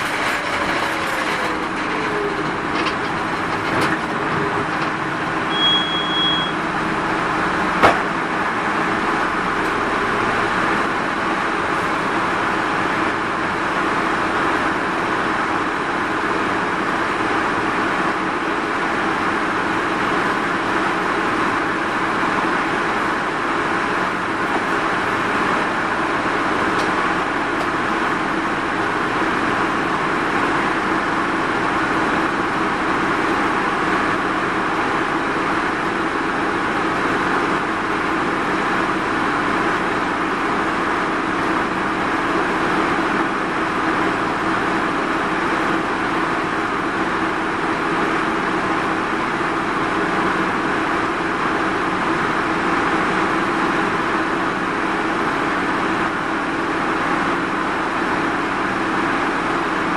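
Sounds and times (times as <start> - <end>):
minibus engine running: 0.0 - 59.9.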